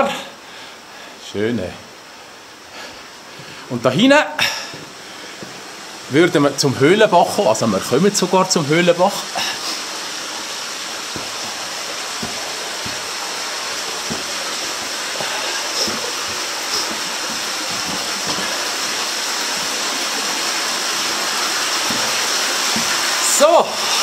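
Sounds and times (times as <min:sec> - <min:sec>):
stream rushing: 0:04.0 - 0:24.0
faint knocks: 0:11.1 - 0:13.2, 0:14.0 - 0:18.7.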